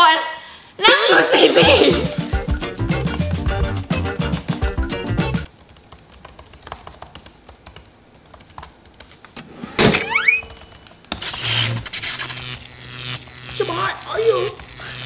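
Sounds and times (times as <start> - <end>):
laptop keyboard typing clicks: 5.5 - 9.4, 10.3 - 11.2.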